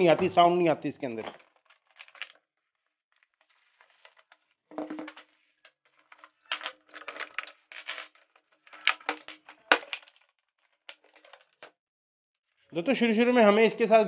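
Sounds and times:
plastic wrapping rustling: 1.1s - 11.7s.

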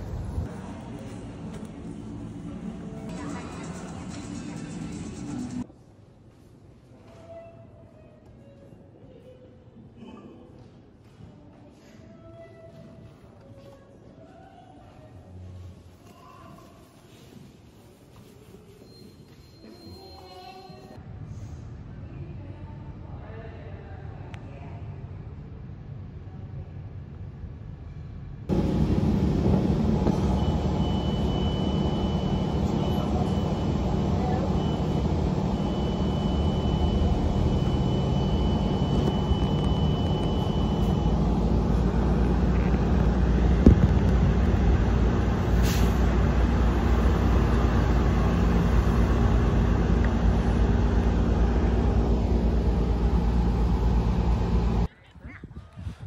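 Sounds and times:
bus engine and road rumble: 0.0s - 5.7s, 25.5s - 54.9s.

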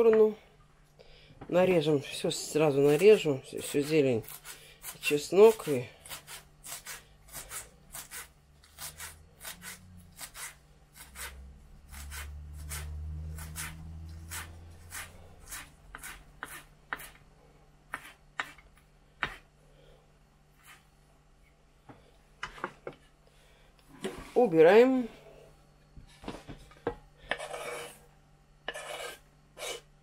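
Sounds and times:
knife chopping on wooden board: 11.9s - 17.2s, 17.9s - 18.6s, 19.2s - 19.4s.

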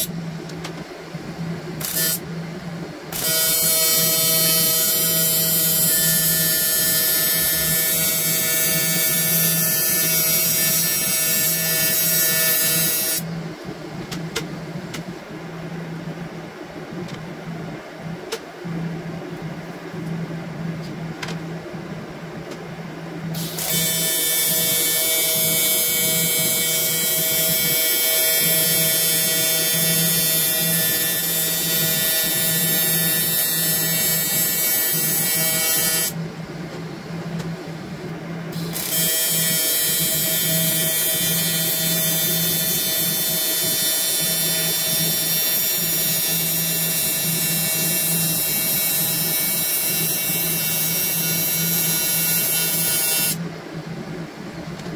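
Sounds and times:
welding arc buzzing: 1.8s - 2.2s, 3.1s - 13.3s, 23.3s - 36.2s, 38.5s - 53.4s.

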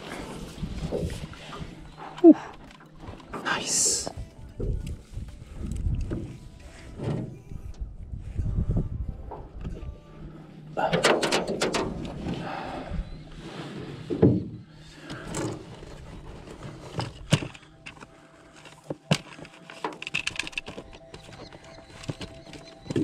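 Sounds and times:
knocks and clicks in metal boat: 10.9s - 12.3s.

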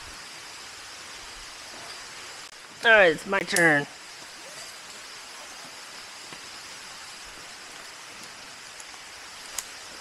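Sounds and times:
steady background hiss: 0.0s - 10.0s.

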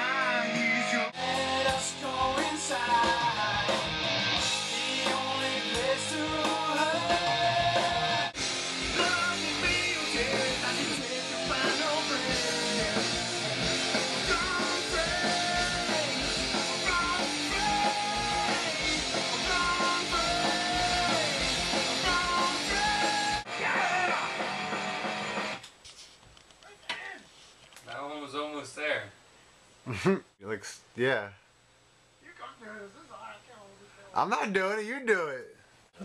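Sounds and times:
person singing: 0.0s - 3.9s, 4.6s - 24.9s
electric guitar: 0.0s - 25.6s
stoner rock music: 0.0s - 25.6s.

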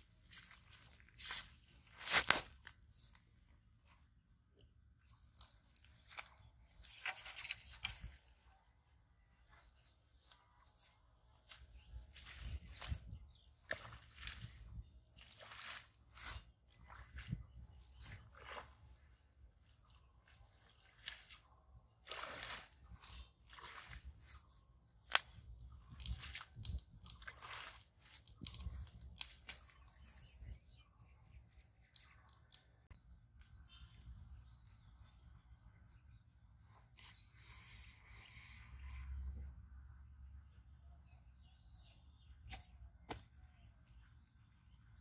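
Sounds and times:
footsteps through grass and dry leaves: 0.0s - 3.2s, 5.0s - 8.5s, 9.5s - 30.6s
stick swishing pond water: 0.0s - 39.4s, 42.3s - 44.0s.

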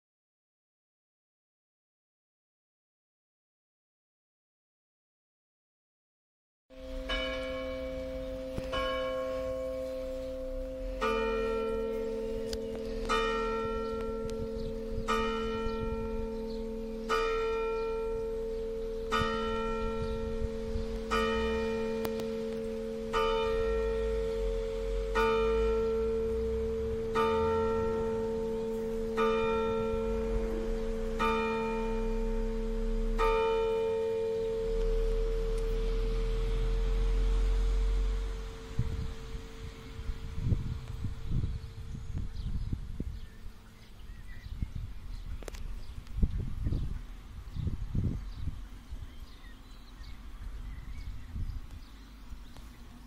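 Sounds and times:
lower bell ringing: 6.7s - 40.7s
church bells ringing: 6.7s - 41.9s.

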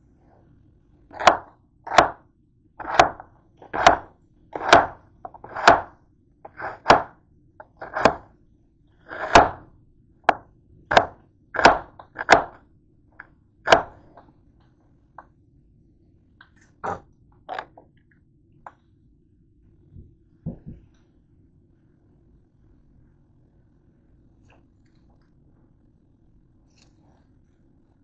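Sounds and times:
knife chopping onion on board: 1.1s - 2.2s, 2.8s - 5.9s, 6.5s - 8.3s, 9.1s - 9.7s, 10.3s - 12.6s, 13.7s - 14.0s.

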